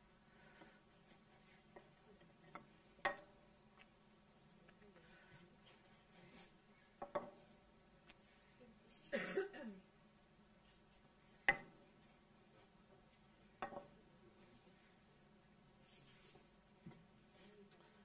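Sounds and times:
rolling pin knocking on stone worktop: 13.6 - 13.9.

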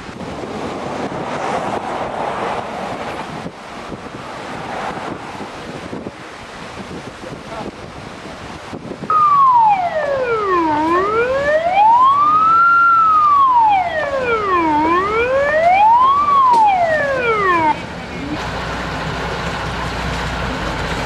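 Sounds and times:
water noise: 0.0 - 21.0
wind: 0.0 - 21.0
siren wailing: 9.1 - 18.4.

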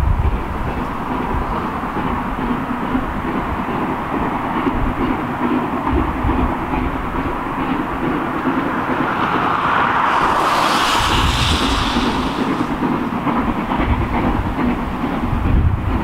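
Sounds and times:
hissing rush of steam: 7.6 - 13.2.

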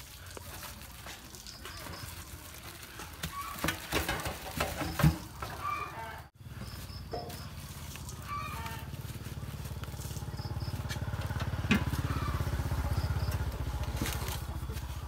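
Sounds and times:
small motorcycle engine idling: 6.3 - 15.0.

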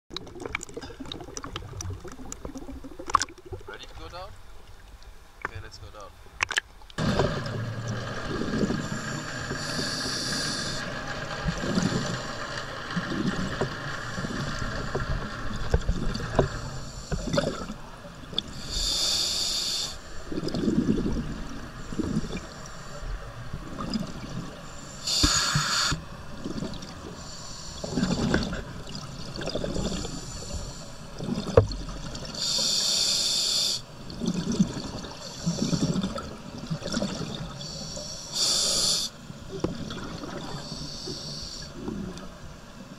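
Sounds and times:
exhaled bubbles rumbling: 0.1 - 3.8, 7.0 - 18.9, 20.1 - 32.4, 34.0 - 37.7, 39.5 - 42.4
regulator inhalation hiss: 8.9 - 10.9, 18.5 - 20.1, 24.7 - 26.0, 27.2 - 28.2, 32.4 - 33.9, 37.6 - 39.2, 40.5 - 41.7.

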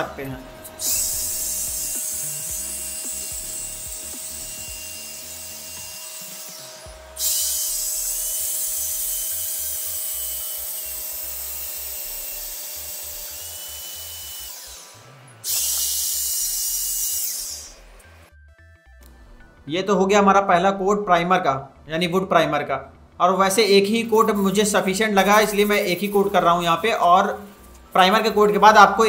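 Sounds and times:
high motor whine: 0.0 - 18.3
paint sprayer hissing: 0.6 - 18.3, 23.9 - 29.0.

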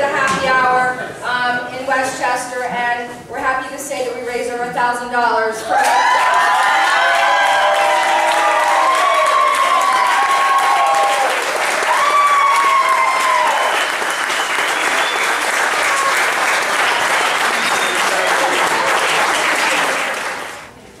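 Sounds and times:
voices whooping and calling out: 5.6 - 13.9
audience applauding: 5.8 - 20.8.

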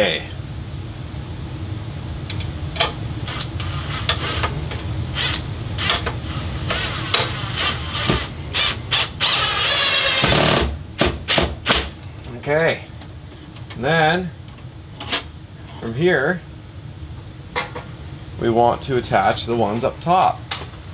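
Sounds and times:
cordless drill driving screws: 6.7 - 10.5.

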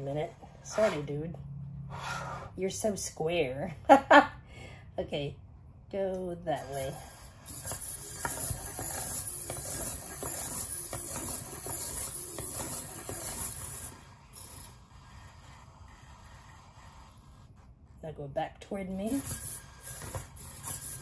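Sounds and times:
toy robot servos whirring: 6.5 - 17.8, 18.9 - 21.0.

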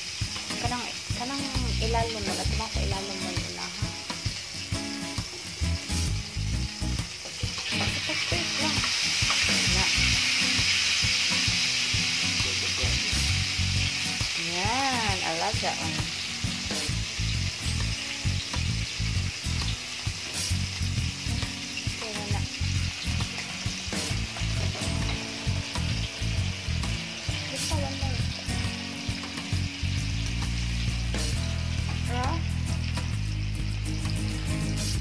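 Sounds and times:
meat sizzling in a grill pan: 0.0 - 35.0.

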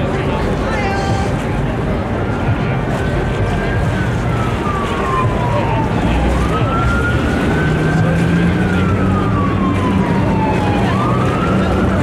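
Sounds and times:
boat engine drone: 0.0 - 12.0
siren wailing: 3.6 - 12.0.

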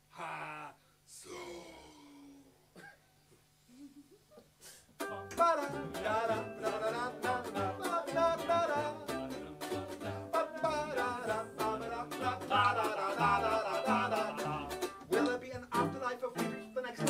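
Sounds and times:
ukulele strumming: 5.0 - 17.0.

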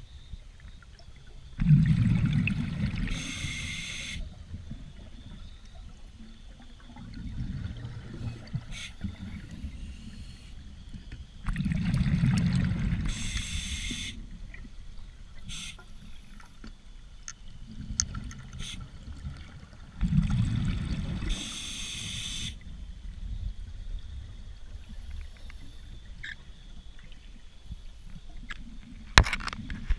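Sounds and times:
exhaled bubbles rumbling underwater: 0.0 - 29.9
regulator hiss: 3.0 - 4.4, 8.1 - 10.8, 12.9 - 14.3, 15.4 - 16.3, 21.1 - 22.7.

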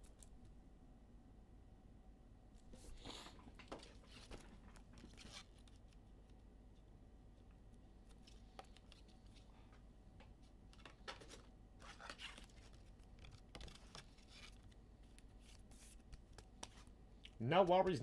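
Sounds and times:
low room hum: 0.0 - 18.0
trading cards rustling and clicking: 8.1 - 9.9, 10.6 - 16.9.

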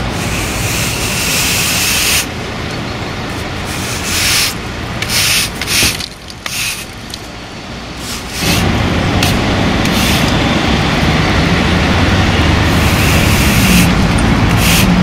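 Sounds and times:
broom sweeping debris on asphalt: 3.4 - 7.2, 8.0 - 10.4, 12.7 - 15.0.

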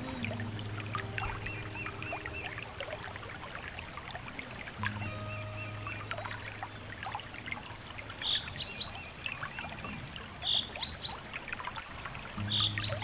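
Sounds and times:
stream trickling: 0.0 - 13.0
small birds chirping: 8.1 - 11.3, 12.4 - 13.0.

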